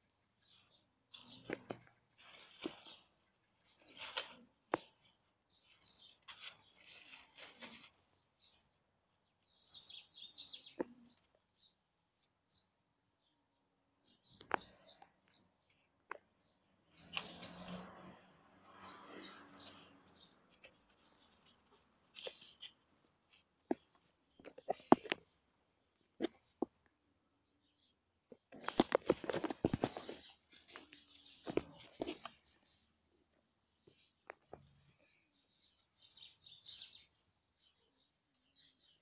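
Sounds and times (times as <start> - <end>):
small birds chirping: 0.0 - 39.0
dry leaves rustling: 0.4 - 8.0.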